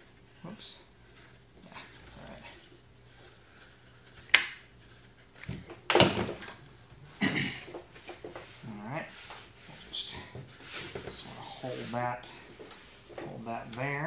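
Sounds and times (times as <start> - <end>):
cardboard rustling and knocks: 5.4 - 6.6.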